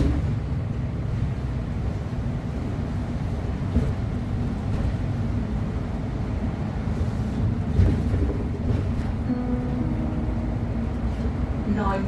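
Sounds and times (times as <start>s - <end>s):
bus bump: 0.0s - 0.6s, 3.5s - 5.4s, 6.9s - 9.8s
bus engine and road rumble: 0.0s - 12.0s.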